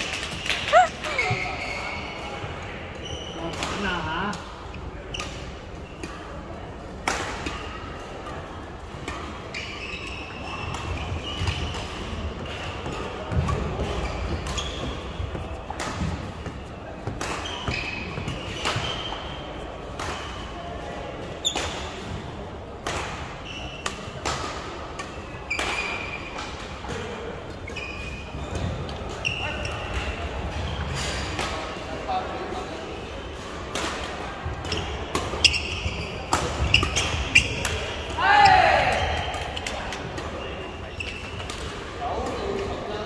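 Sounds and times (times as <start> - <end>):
shoes squeaking on court: 0.7 - 2.4, 3.0 - 3.9, 9.5 - 11.8, 12.5 - 15.4, 17.4 - 19.2, 27.6 - 31.1, 34.7 - 38.8, 39.5 - 41.5
rackets hitting shuttlecock: 33.7 - 38.0.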